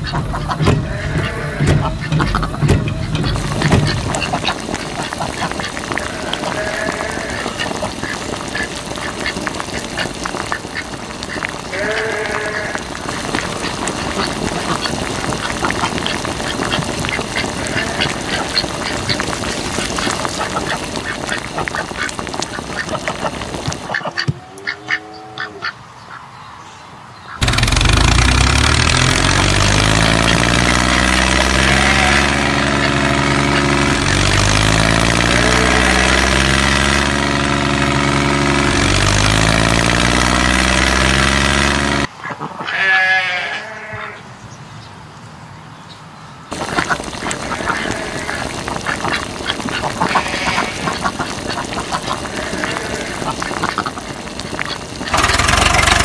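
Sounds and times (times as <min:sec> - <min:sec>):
engine running: 0:00.0 - 0:24.0, 0:27.4 - 0:42.1, 0:46.5 - 0:56.0
rustling ticking background: 0:00.0 - 0:24.2, 0:46.5 - 0:56.0
duck quacks: 0:00.0 - 0:26.2, 0:46.5 - 0:56.0.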